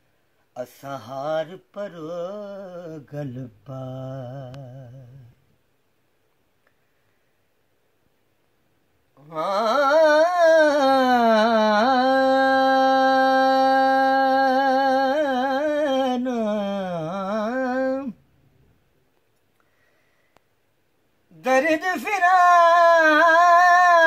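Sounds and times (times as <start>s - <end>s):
man singing unaccompanied: 0.4s - 5.6s, 9.1s - 18.4s, 21.2s - 24.0s.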